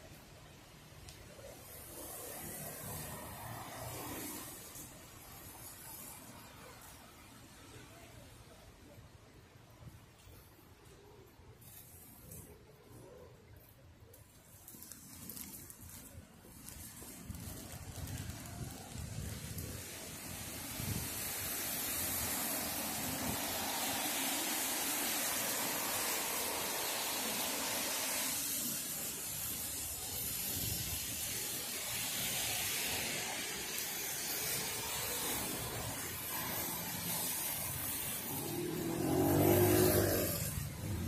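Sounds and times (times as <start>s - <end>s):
tyres hissing on wet road: 0.0s - 41.0s
motor scooter passing: 31.5s - 41.0s.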